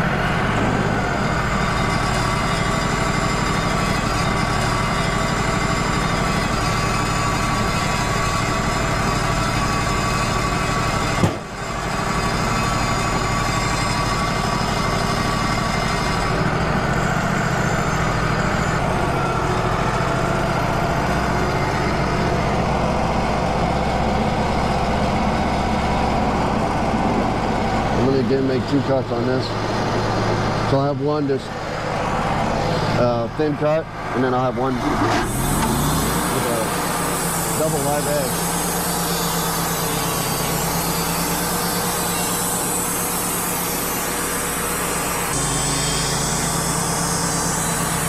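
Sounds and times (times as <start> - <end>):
high whine: 0.0 - 48.0
sawmill engine running: 0.0 - 48.0
short knock: 11.2 - 11.4.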